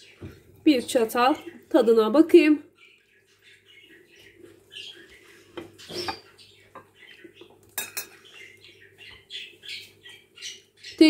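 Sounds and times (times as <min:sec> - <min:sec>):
fork clinking on porcelain plate: 0:07.8 - 0:08.2.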